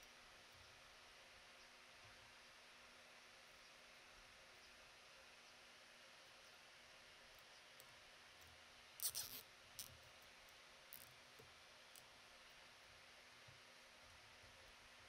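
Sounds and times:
zip ties ratcheting clicks: 9.0s - 9.9s.

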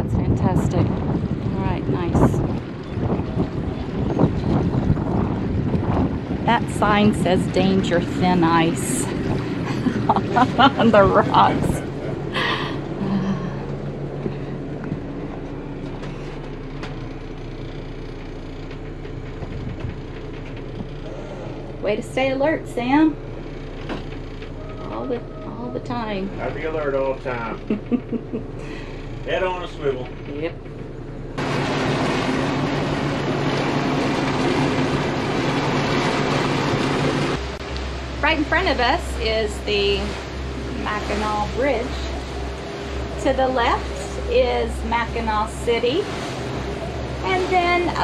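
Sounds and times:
boat engines running: 0.0s - 48.0s
wake water and wind rushing: 0.0s - 48.0s
rattles and clicks from fittings: 13.8s - 21.0s.

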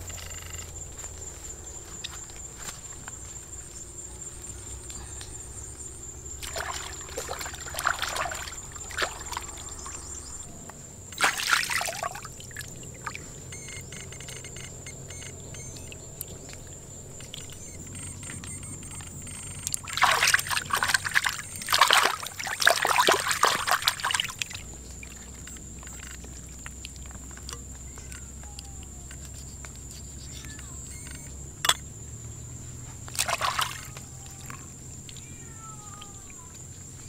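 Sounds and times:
faint high whine: 0.0s - 26.3s, 27.5s - 31.9s
water splashing and sloshing: 5.9s - 14.7s, 15.5s - 28.2s, 33.0s - 34.7s.

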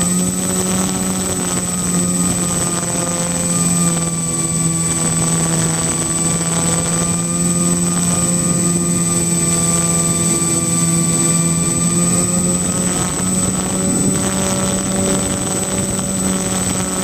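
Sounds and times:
electric propeller motors droning: 0.0s - 17.0s
rushing wind: 0.0s - 17.0s.

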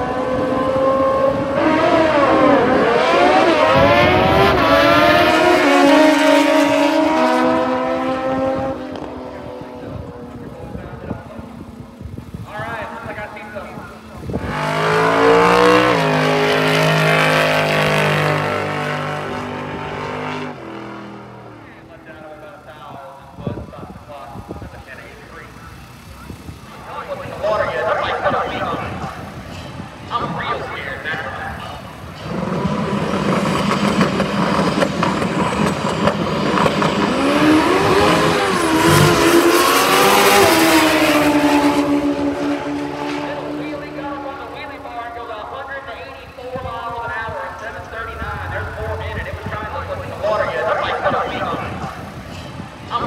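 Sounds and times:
motorcycle accelerating hard: 0.0s - 22.2s, 31.9s - 44.8s
drag car engine at full throttle: 0.0s - 53.0s.

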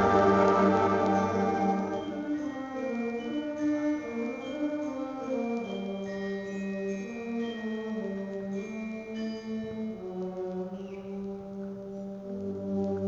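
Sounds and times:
concert band playing chords: 0.0s - 2.4s
short high notes: 0.0s - 2.5s.

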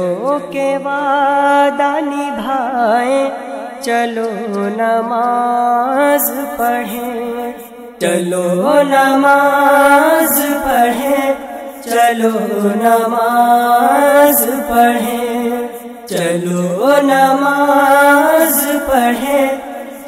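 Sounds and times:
girls singing into a microphone: 8.1s - 20.0s.

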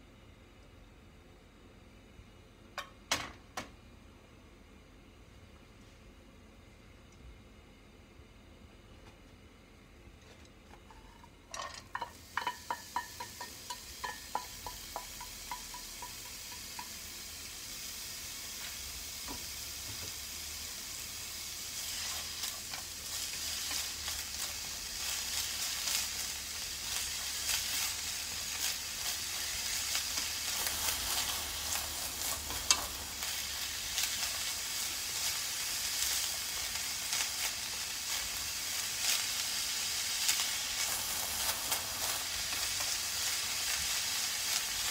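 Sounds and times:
vegetables sizzling in pan: 11.0s - 44.9s
steel bowl knocking against pan: 11.6s - 17.0s.

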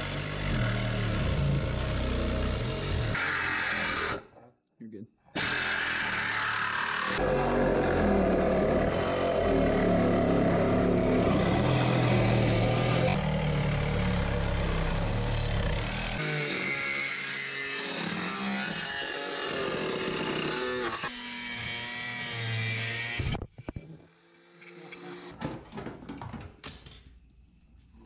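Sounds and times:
angle grinder cutting sheet metal: 0.0s - 4.4s, 5.4s - 25.3s.

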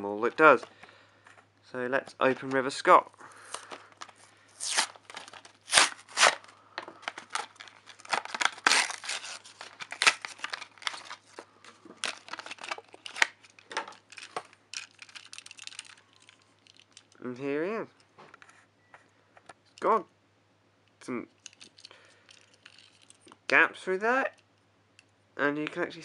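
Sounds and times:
blister pack being torn open: 3.5s - 11.4s, 12.0s - 17.2s.

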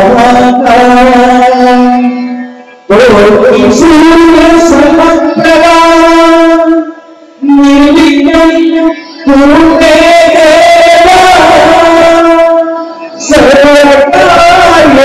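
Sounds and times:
person singing devotional song: 0.0s - 15.0s.

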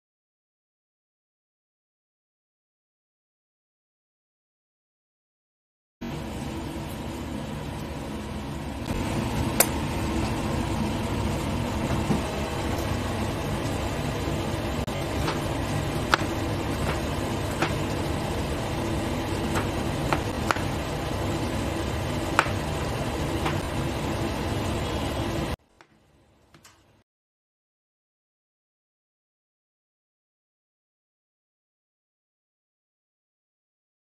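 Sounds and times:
loud machine-like hum: 6.0s - 25.6s.

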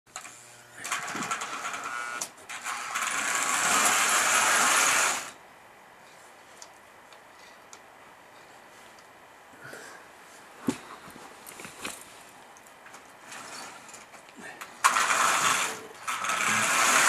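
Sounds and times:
toy train whirring rattle: 0.2s - 5.4s, 14.8s - 17.0s
faint hum: 5.3s - 14.9s.

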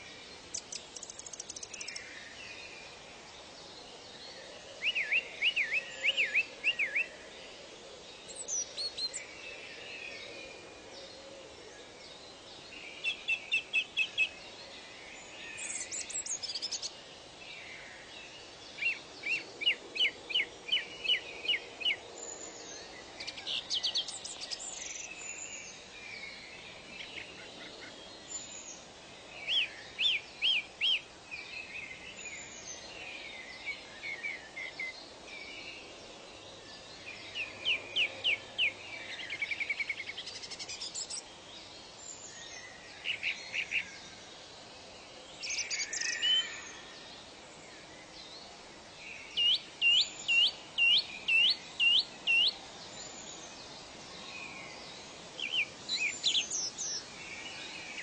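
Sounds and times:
soft bird chirps: 0.0s - 3.0s
soft steady hiss: 0.0s - 58.0s.

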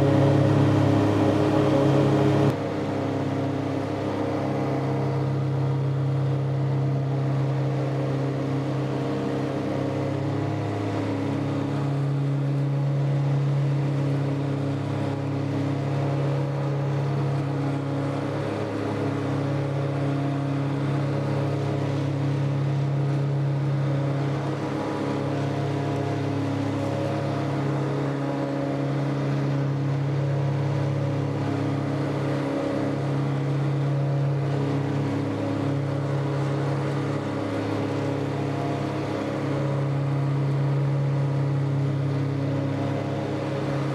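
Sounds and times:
tractor engine running under load: 0.0s - 43.9s.

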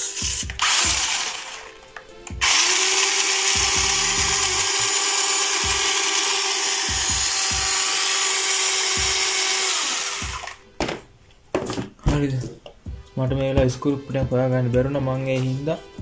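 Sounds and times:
toy truck motors whirring: 0.0s - 1.8s, 2.4s - 10.6s.

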